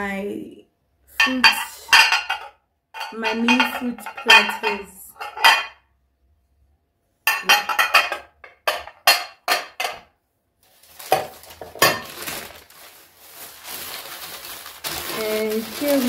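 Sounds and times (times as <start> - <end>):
plates clinking together: 1.2 - 5.8, 7.3 - 10.1
rustling: 10.6 - 16.0.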